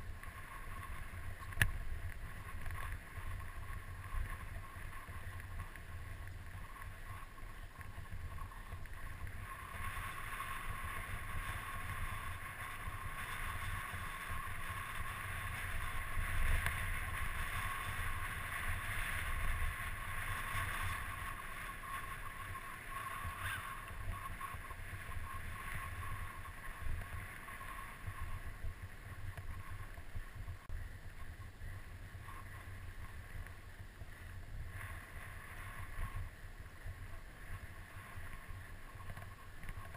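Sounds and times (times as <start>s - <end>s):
bike tyres rolling on dirt: 0.0s - 39.9s
steady whir: 0.0s - 39.9s.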